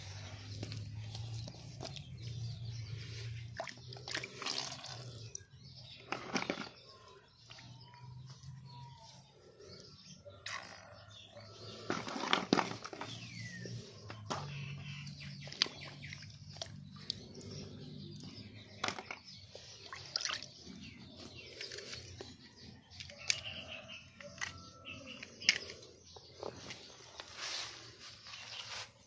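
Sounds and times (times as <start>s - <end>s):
fish splashing in water: 3.6s - 5.1s, 19.8s - 20.5s.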